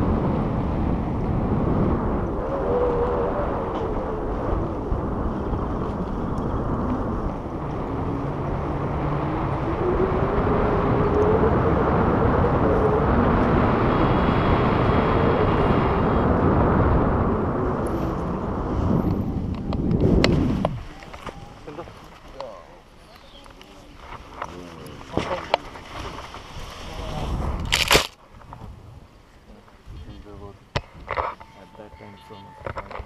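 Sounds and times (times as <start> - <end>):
wind rushing over microphone: 0.0 - 33.0.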